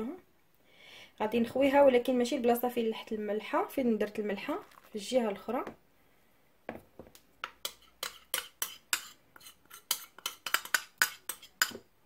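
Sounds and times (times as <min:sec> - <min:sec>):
metal spoon scraping a bowl: 0:07.6 - 0:11.8.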